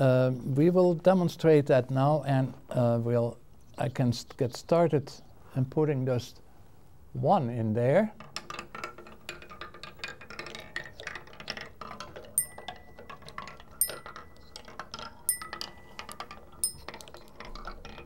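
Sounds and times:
marble rattling down wooden ramps: 8.2 - 18.0
ringing metallic strike: 12.4 - 13.0, 13.8 - 14.4, 15.3 - 16.0, 16.6 - 16.9.

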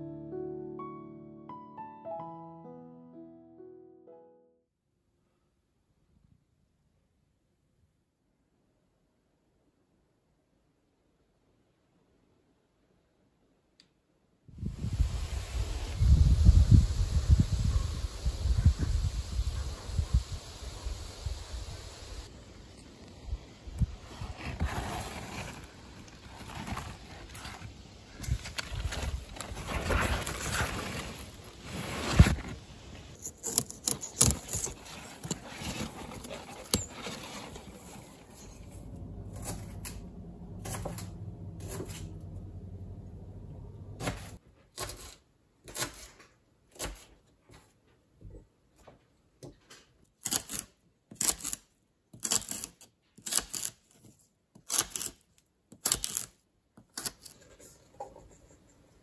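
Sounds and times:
rustling of leaves and stalks: 20.4 - 42.4.

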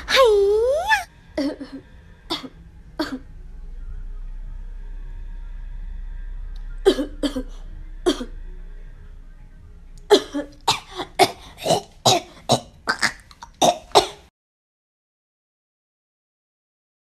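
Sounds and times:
woman fake coughing: 10.1 - 14.3.

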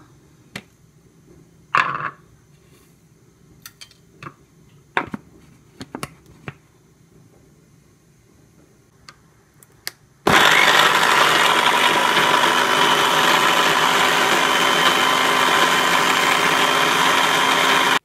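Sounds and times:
electric blender running: 10.3 - 18.0.

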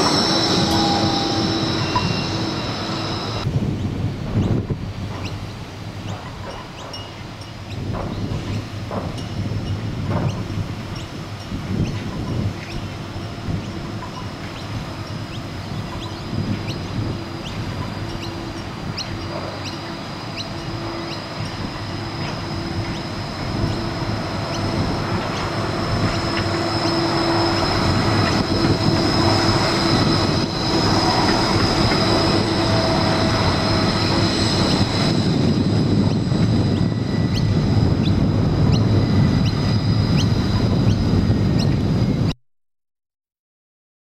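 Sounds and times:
high-pitched wheel squeal: 0.0 - 3.5, 16.7 - 41.7
tram rumbling past: 0.0 - 42.3.

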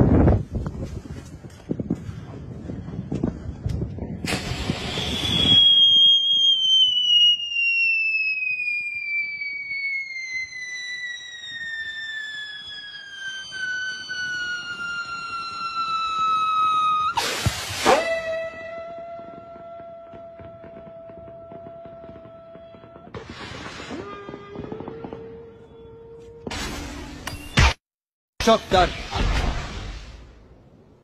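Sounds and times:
firework rushing blast: 4.2 - 18.9, 19.6 - 25.4
firework whistling: 4.3 - 27.6.

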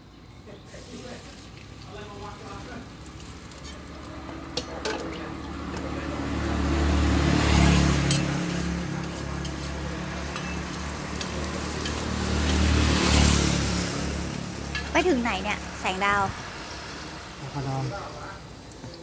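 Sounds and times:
roti frying on a griddle: 0.0 - 19.0
vehicle driving past: 3.0 - 18.4
metal spatula clicking on griddle: 8.0 - 12.7.

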